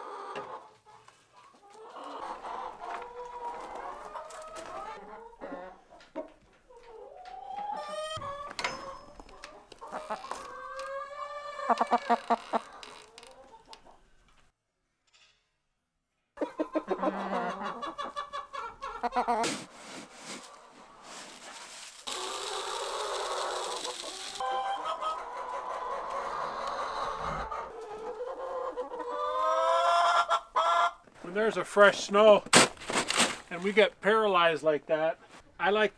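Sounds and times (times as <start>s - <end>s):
chickens clucking and calling: 0.0s - 14.3s, 16.4s - 31.5s
feed pellets poured into feeder: 19.5s - 24.4s.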